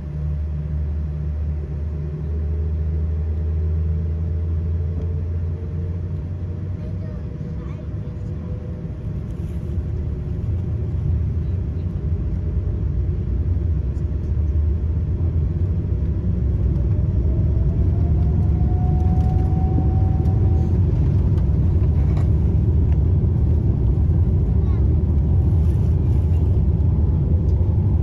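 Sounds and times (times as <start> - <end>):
jet engines rumbling: 0.0 - 28.0
thin rising whine: 16.4 - 21.7.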